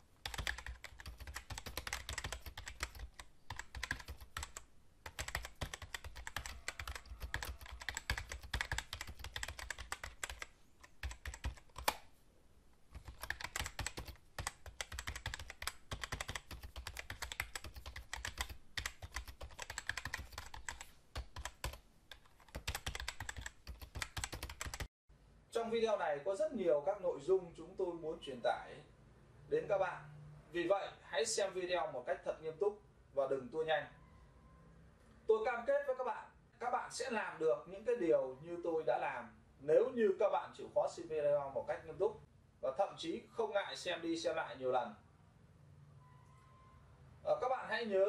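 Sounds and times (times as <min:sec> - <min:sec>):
computer keyboard typing: 0:00.2 - 0:12.1, 0:12.9 - 0:24.9.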